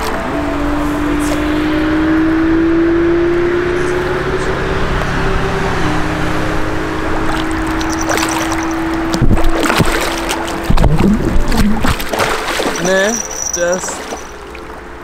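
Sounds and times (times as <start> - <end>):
water noise: 0.0 - 2.8, 4.7 - 15.0
fish splashing and thrashing: 7.0 - 15.0.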